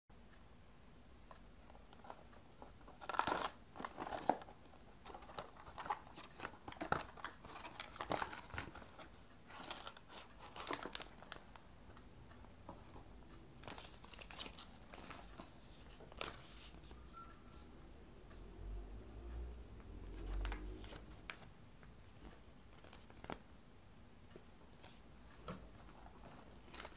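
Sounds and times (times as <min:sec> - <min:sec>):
plastic bag crinkling: 0:03.0 - 0:11.5.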